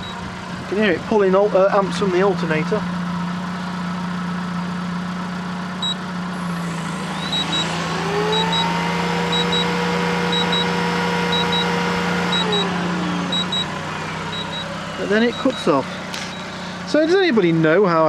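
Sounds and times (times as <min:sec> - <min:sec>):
car engine idling: 0:00.0 - 0:18.0
vacuum cleaner running: 0:06.3 - 0:15.5
high double beep: 0:07.1 - 0:13.7, 0:14.3 - 0:17.2.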